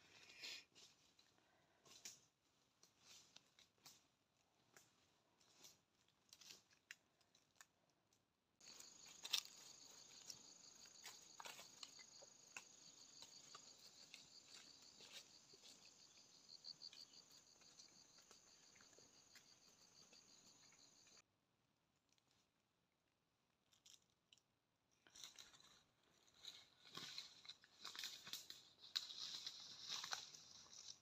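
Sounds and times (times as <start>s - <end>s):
insect chorus trilling: 8.6s - 21.2s.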